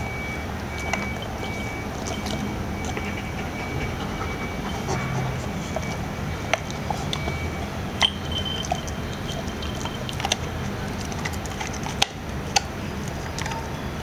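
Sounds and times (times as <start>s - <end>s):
steady low hum: 0.0s - 13.3s
dog teeth clicking on metal: 8.0s - 12.7s.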